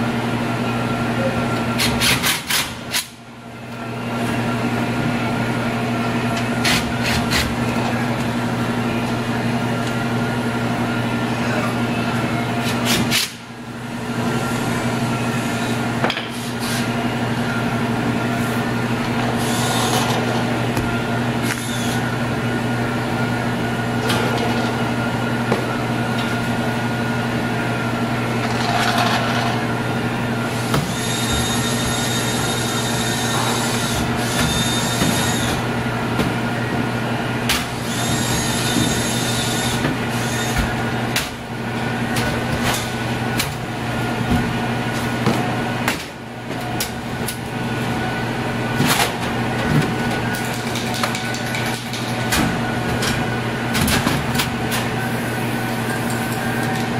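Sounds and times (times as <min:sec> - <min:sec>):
machine hum: 0:13.4 - 0:56.9.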